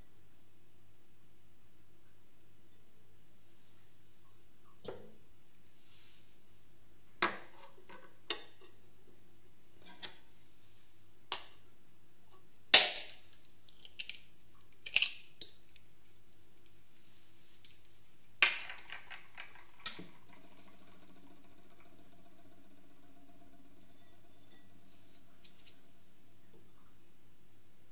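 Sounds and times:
eggshell rattling: 18.4s - 24.8s.

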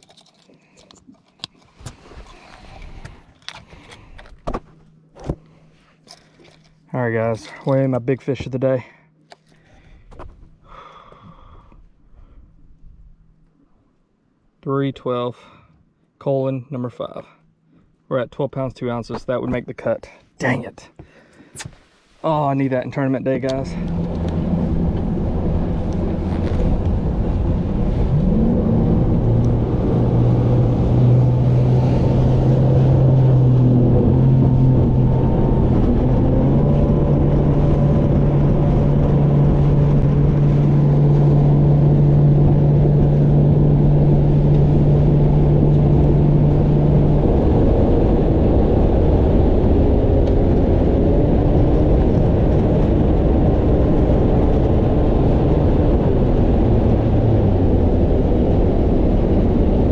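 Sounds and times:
outboard motor running: 23.4s - 59.9s.

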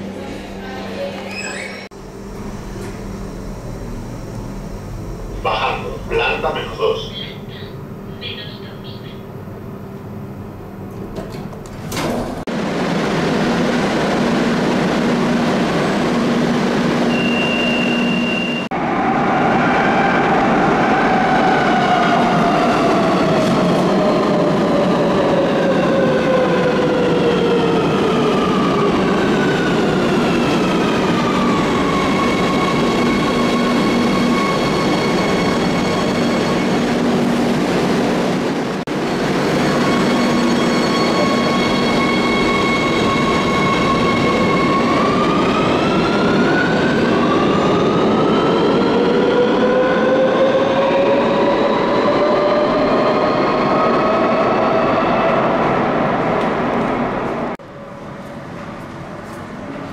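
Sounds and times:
steady rumble: 1.9s - 8.6s
short high beep: 17.1s - 18.7s.

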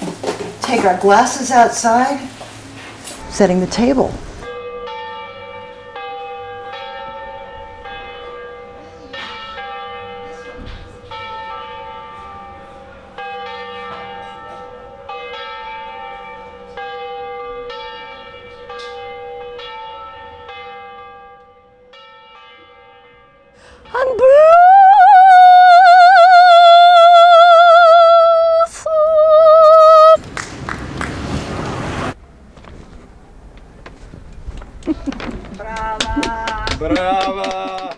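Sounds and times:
church bells ringing: 3.2s - 24.4s.

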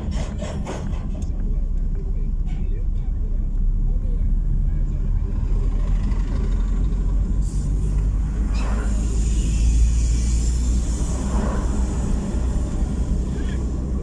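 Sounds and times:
car road and engine rumble: 0.0s - 14.0s
rushing hiss of passing truck: 7.2s - 14.0s.

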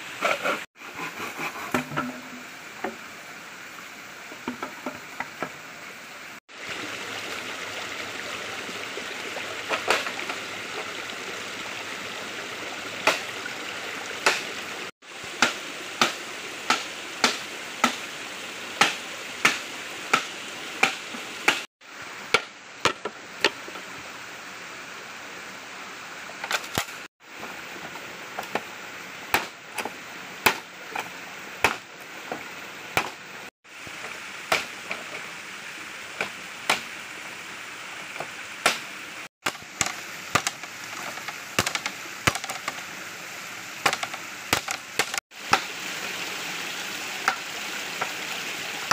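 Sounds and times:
stream rushing: 0.0s - 48.9s
machete chopping bamboo: 15.4s - 18.0s, 18.8s - 21.7s, 22.3s - 23.6s, 29.3s - 31.8s, 33.0s - 33.2s, 34.5s - 34.8s, 36.2s - 36.9s, 38.6s - 42.8s, 43.8s - 45.7s.

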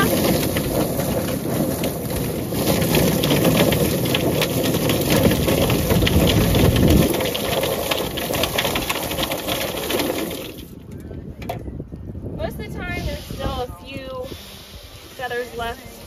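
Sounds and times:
chicken plucker machine rumbling: 0.0s - 10.7s
water spraying into drum: 0.0s - 10.7s
rapid slapping and crackling: 0.0s - 10.8s.

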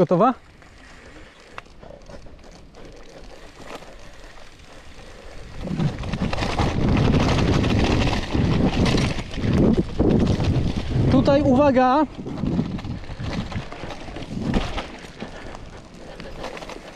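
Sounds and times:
bike tyres rattling: 0.0s - 16.9s
wind on microphone: 5.4s - 16.9s.

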